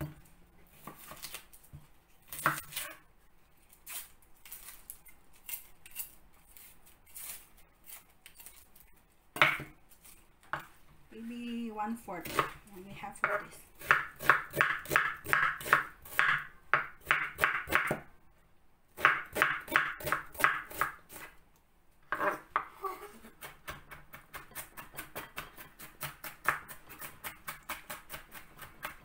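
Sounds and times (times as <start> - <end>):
knife chopping on cutting board: 13.2 - 18.0, 19.0 - 21.3, 23.4 - 29.0.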